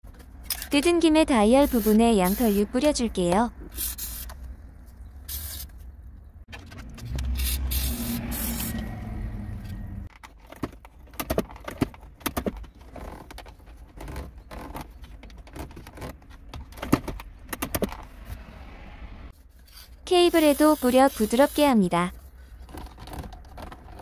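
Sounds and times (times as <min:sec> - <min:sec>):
aerosol spray hissing: 0:01.6 - 0:02.6
plastic clicks and scrapes: 0:22.5 - 0:24.0.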